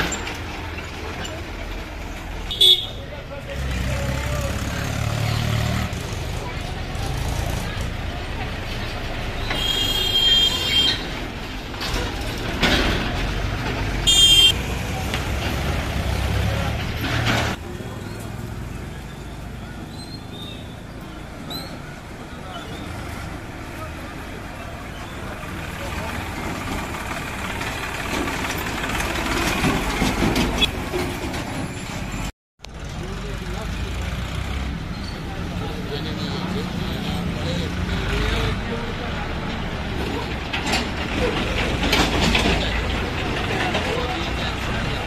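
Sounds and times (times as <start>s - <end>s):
street traffic noise: 0.0s - 45.0s
tractor diesel engine rumbling: 0.0s - 45.0s
vehicle horn: 2.5s - 3.0s, 9.5s - 11.1s, 14.0s - 14.6s.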